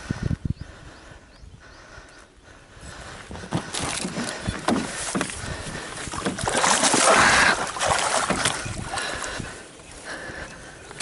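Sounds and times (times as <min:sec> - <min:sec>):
fish thrashing and water splashing: 0:03.4 - 0:11.0.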